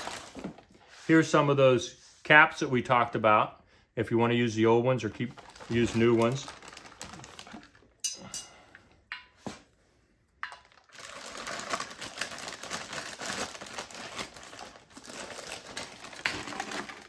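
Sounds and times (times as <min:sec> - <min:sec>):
plastic bag crinkling: 0:00.0 - 0:00.7, 0:05.1 - 0:08.0, 0:10.5 - 0:17.0.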